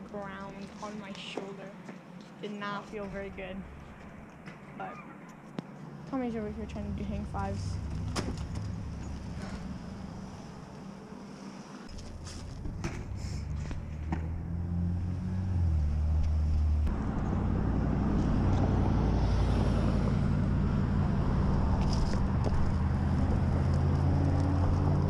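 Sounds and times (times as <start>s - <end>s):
passing car traffic: 2.9s - 25.0s
bike tyre noise on road: 7.6s - 25.0s.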